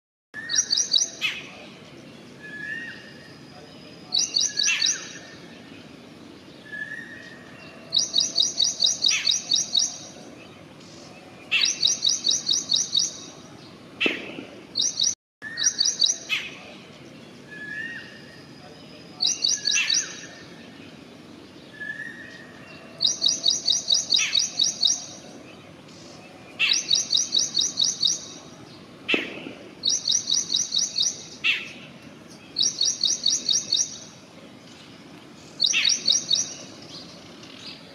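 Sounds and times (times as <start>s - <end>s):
wild birds singing: 0.4s - 37.9s.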